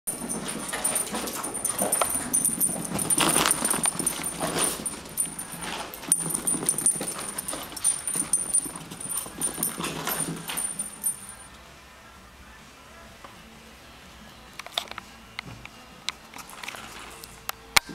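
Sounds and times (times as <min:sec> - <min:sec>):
scuffling noises: 0:00.1 - 0:11.5.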